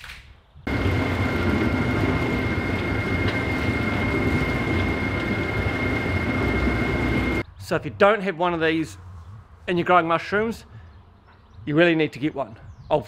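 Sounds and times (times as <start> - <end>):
blender motor whining and rumbling: 0.7 - 7.4.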